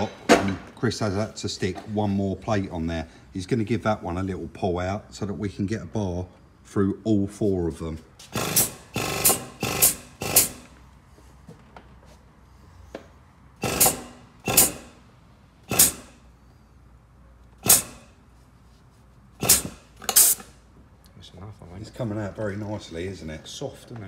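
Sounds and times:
hydraulic puller bursts: 8.3s - 10.8s, 13.6s - 16.4s, 17.6s - 18.2s, 19.4s - 20.6s.

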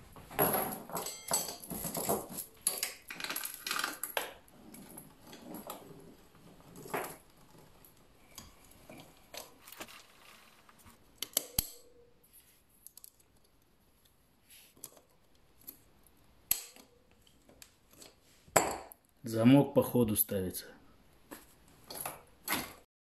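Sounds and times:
metallic chain clicks: 0.4s - 6.0s.

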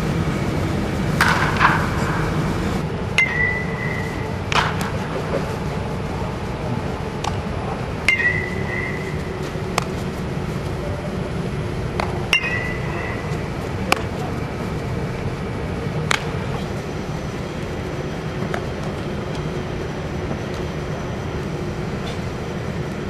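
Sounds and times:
metal bat pinging ball: 1.2s - 2.2s, 3.1s - 5.4s, 7.2s - 10.0s, 11.9s - 14.1s, 16.0s - 16.5s
ball smacking into glove: 16.1s - 16.4s.

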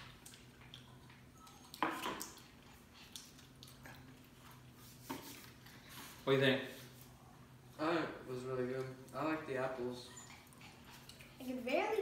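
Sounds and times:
people chewing food: 0.0s - 6.2s, 10.2s - 11.4s
faint steady hum: 0.0s - 12.0s.

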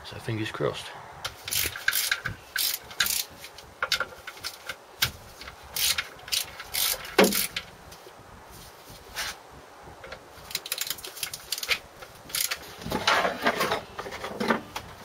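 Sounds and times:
socket ratchet clicking: 1.5s - 4.7s, 5.4s - 7.6s, 10.5s - 12.6s.

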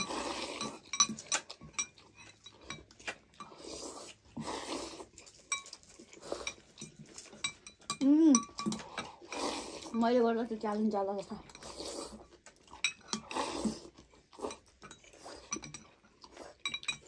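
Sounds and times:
people slurping noodles: 0.0s - 1.5s, 3.1s - 7.2s, 8.0s - 10.0s, 11.6s - 12.4s, 13.1s - 15.6s
utensils clicking on glass bowls: 0.0s - 3.5s, 6.4s - 9.2s, 12.7s - 13.3s, 14.5s - 16.0s, 16.6s - 17.0s.

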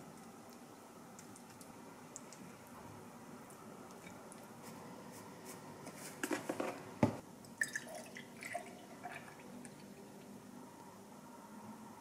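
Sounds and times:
milk pouring into glass: 7.6s - 10.3s.

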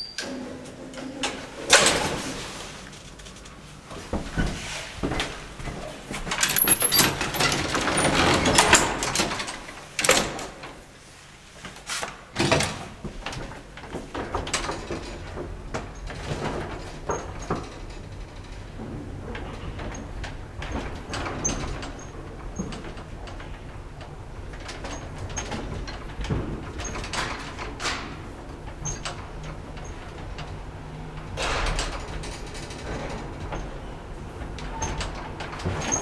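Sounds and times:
elevator rattling: 6.3s - 10.7s, 12.4s - 36.0s
elevator clunks and knocks: 12.4s - 36.0s.

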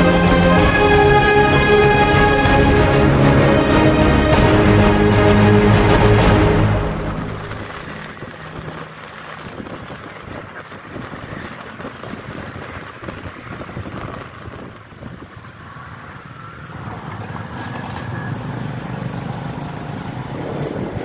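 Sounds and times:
road traffic engines: 0.0s - 21.0s.

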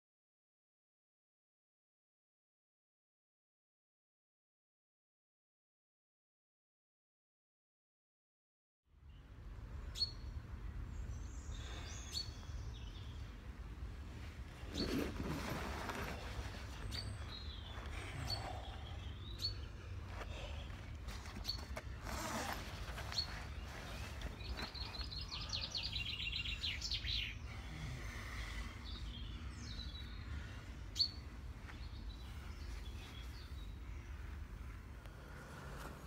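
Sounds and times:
songbirds chirping: 8.9s - 36.0s
fabric rustling: 14.2s - 17.8s, 21.0s - 25.1s.

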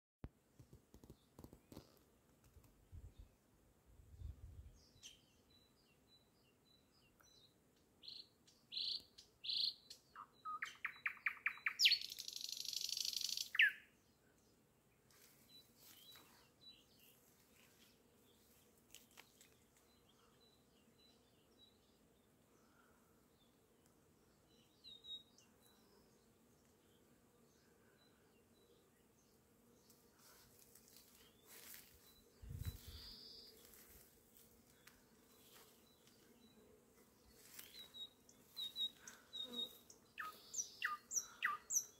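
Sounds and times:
nightingale singing: 8.0s - 13.9s, 32.4s - 33.7s, 37.5s - 41.9s
birds chirping: 31.0s - 34.0s, 34.7s - 41.9s
microphone handling noise: 32.4s - 33.0s.

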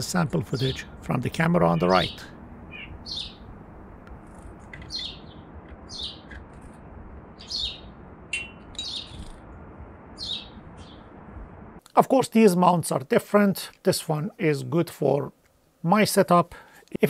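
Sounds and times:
small birds chirping: 0.0s - 9.5s, 10.2s - 11.2s
steady background hiss: 6.9s - 17.0s.

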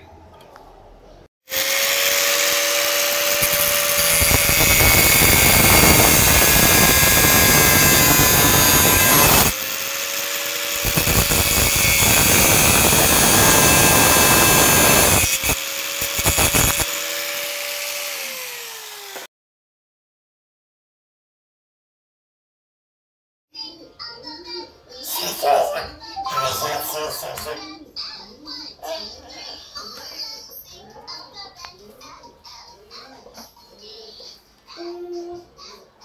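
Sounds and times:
angle grinder cutting metal: 1.5s - 19.3s, 26.2s - 27.6s.

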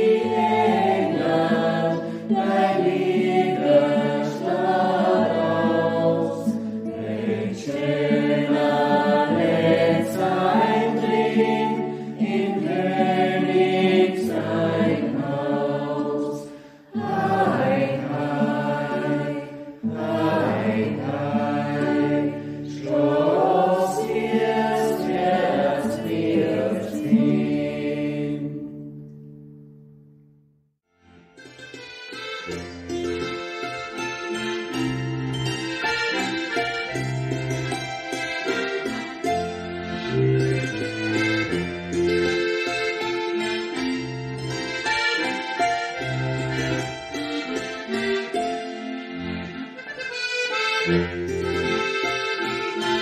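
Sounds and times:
choir singing slowly: 0.0s - 29.1s.

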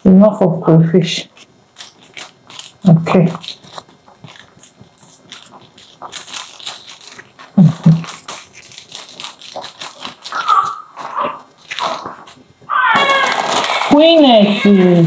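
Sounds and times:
ingredients crunching and crackling: 1.2s - 15.0s
newborn baby crying: 10.4s - 12.0s, 12.7s - 15.0s.

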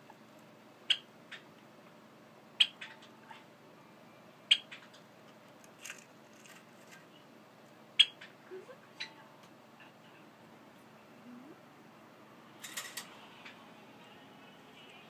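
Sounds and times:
sparrow giving sharp calls: 4.5s - 4.8s, 8.0s - 8.3s.

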